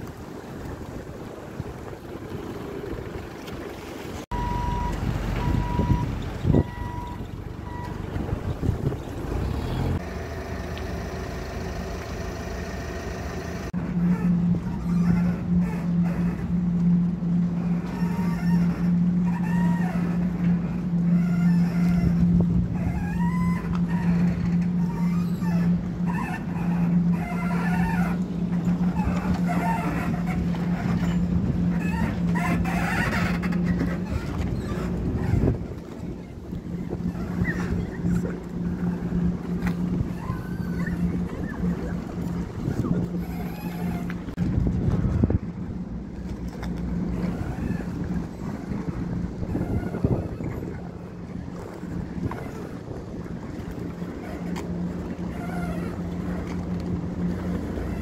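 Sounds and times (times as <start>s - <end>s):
ship machinery hum: 0.0s - 58.0s
water lapping: 0.0s - 58.0s
wind: 0.0s - 58.0s
short beeps: 4.3s - 8.0s.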